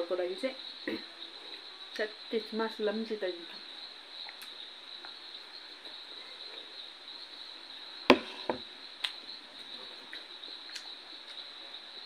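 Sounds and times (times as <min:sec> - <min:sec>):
crickets chirring: 0:00.0 - 0:12.0
plate knocking on hard surface: 0:08.1 - 0:08.6.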